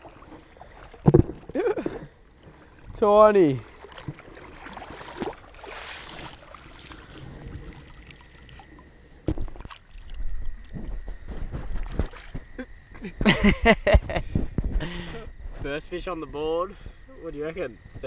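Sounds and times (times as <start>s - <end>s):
river water splashing: 0.0s - 10.7s, 11.8s - 12.6s
camera handling knocks and rumbling: 9.2s - 9.7s.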